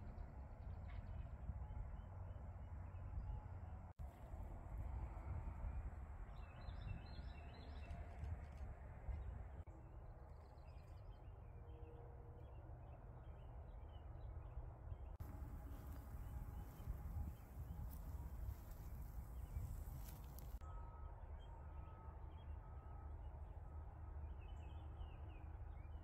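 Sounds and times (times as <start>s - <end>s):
low steady rumble: 15.2s - 20.6s.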